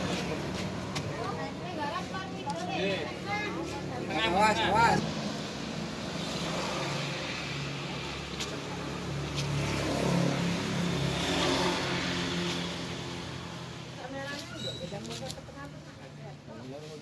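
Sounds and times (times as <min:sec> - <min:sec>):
vehicle engine passing: 0:02.8 - 0:14.2.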